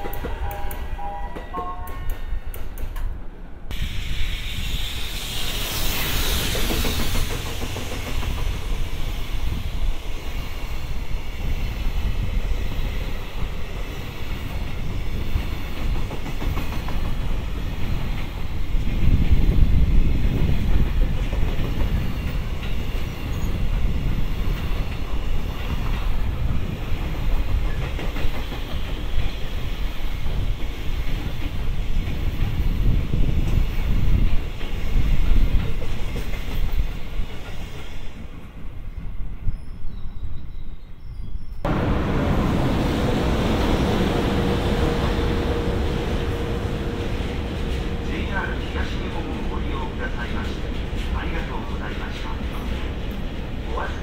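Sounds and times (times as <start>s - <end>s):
freight train rumble: 0.0s - 54.0s
rushing hiss: 3.7s - 12.4s.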